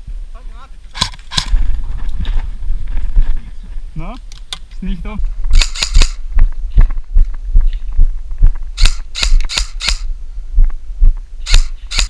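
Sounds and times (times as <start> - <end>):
footsteps thudding: 5.2 - 9.5
airsoft gun shots: 5.5 - 6.2, 8.8 - 10.1, 11.4 - 12.0.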